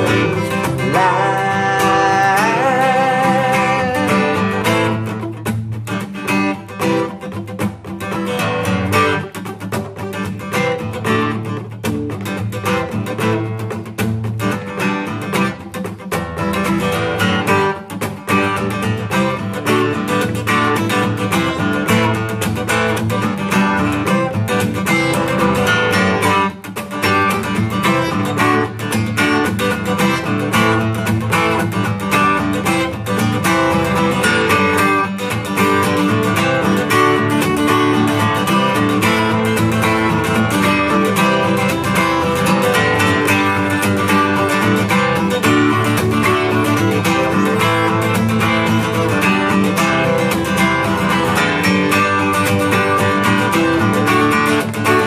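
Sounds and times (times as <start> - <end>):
acoustic guitar strumming: 0.0 - 55.0.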